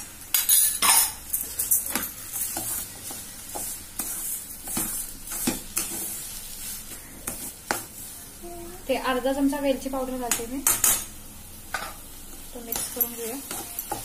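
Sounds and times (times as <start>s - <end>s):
wooden spatula scraping metal pan: 0.5s - 8.1s.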